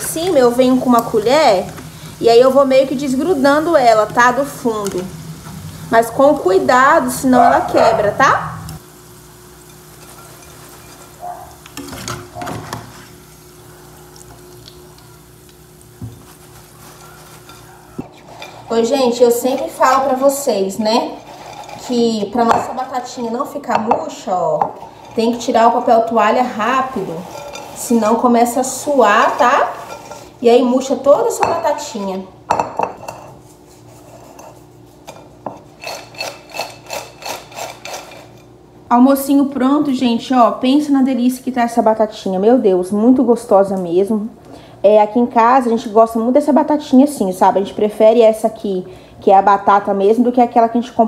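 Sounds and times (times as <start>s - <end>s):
fries rattling in glass bowl: 16.2s - 23.2s.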